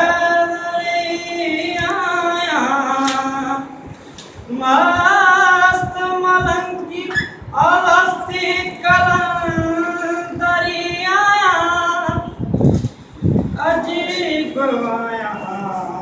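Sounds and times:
young man singing unaccompanied: 0:00.0 - 0:03.9, 0:04.5 - 0:12.6, 0:13.5 - 0:16.0.

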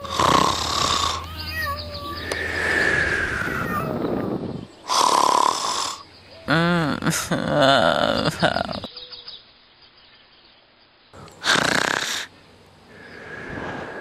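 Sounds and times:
person imitating snoring: 0:00.0 - 0:01.3, 0:04.9 - 0:08.8, 0:11.4 - 0:12.3.

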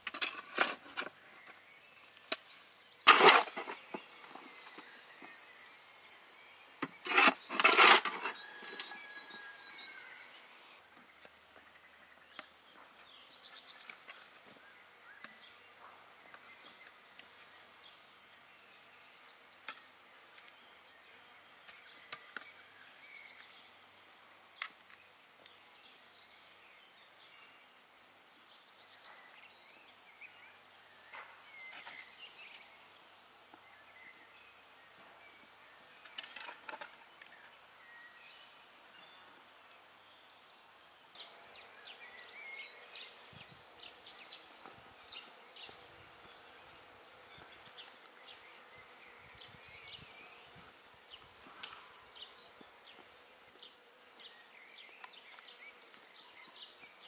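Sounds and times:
shovel scraping in wheelbarrow: 0:00.0 - 0:01.2, 0:03.0 - 0:05.0, 0:06.8 - 0:09.8
bird chirps: 0:01.0 - 0:10.8.

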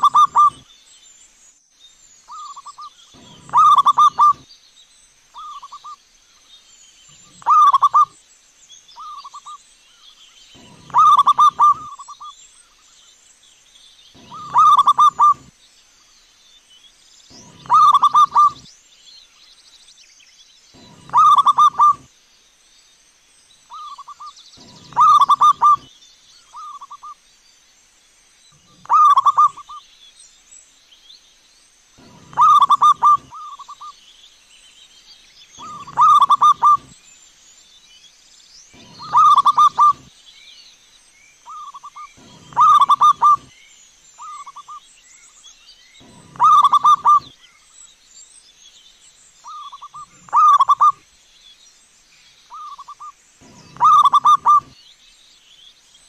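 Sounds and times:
dove cooing: 0:00.0 - 0:00.6, 0:02.3 - 0:04.4, 0:07.3 - 0:08.1, 0:10.6 - 0:12.3, 0:14.2 - 0:15.5, 0:17.3 - 0:18.7, 0:20.8 - 0:22.1, 0:23.7 - 0:25.9, 0:28.6 - 0:29.8, 0:32.0 - 0:33.9, 0:35.6 - 0:36.9, 0:38.8 - 0:40.1, 0:41.5 - 0:43.5, 0:46.0 - 0:47.3, 0:49.5 - 0:51.0, 0:52.6 - 0:54.8.

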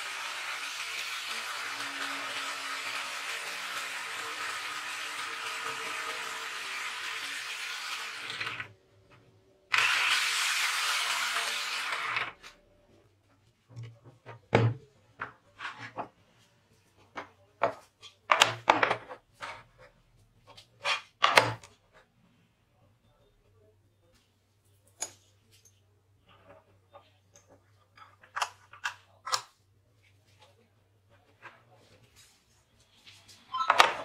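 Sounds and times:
jigsaw cutting plywood: 0:00.0 - 0:08.7, 0:09.7 - 0:12.4.

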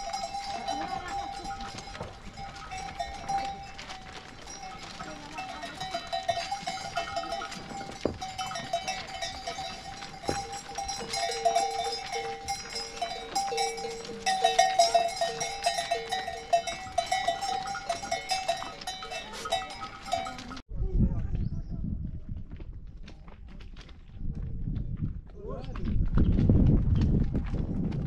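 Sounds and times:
sheep bells clanking: 0:00.0 - 0:20.6.

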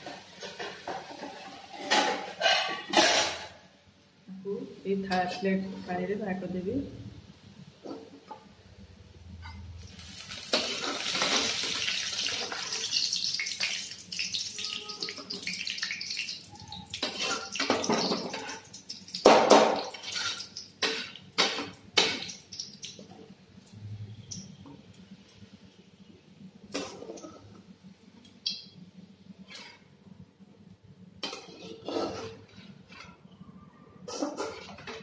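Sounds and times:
hot oil hissing: 0:09.8 - 0:18.0
metal spatula scraping pan: 0:29.4 - 0:29.9, 0:31.2 - 0:33.2, 0:34.1 - 0:35.0.

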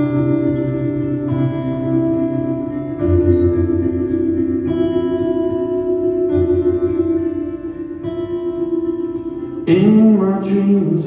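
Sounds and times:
acoustic guitar chords: 0:00.0 - 0:11.0
man singing: 0:09.6 - 0:11.0.

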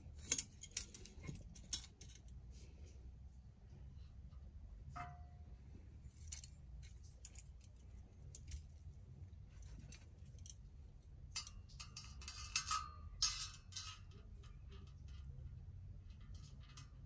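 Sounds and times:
metal parts clinking and rattling: 0:00.0 - 0:02.4, 0:06.0 - 0:10.7, 0:11.3 - 0:17.0.

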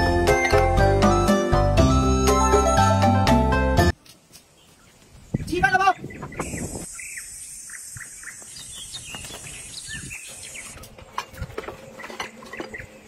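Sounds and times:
bird chirps: 0:04.5 - 0:10.8.

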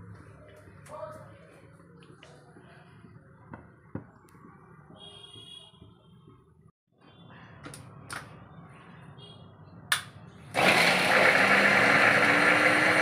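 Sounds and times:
electric food chopper running: 0:10.5 - 0:13.0.

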